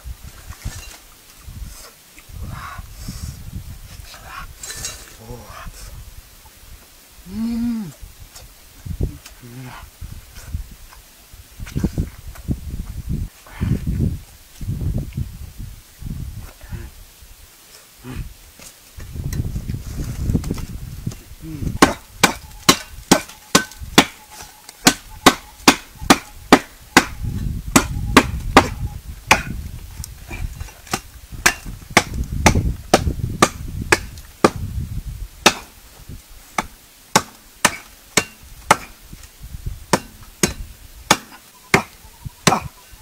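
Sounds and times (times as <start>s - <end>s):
blade chopping tree trunk: 21.8s - 24.2s, 24.8s - 29.6s, 30.6s - 34.7s, 35.4s - 35.7s, 36.6s - 39.0s, 39.9s - 42.7s.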